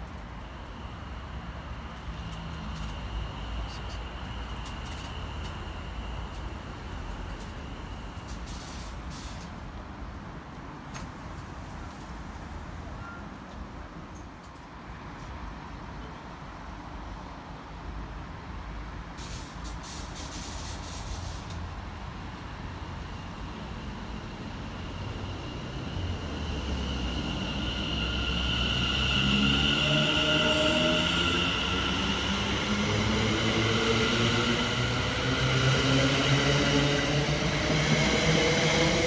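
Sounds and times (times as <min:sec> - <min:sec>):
train rumble: 0:00.0 - 0:14.7, 0:19.1 - 0:39.0
high-pitched squeal: 0:23.2 - 0:39.0.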